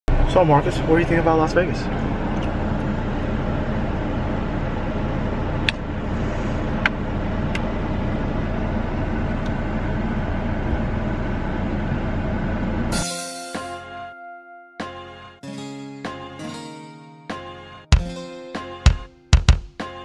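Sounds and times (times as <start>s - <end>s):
car engine humming: 0.1s - 12.9s
road noise inside car: 0.1s - 13.0s.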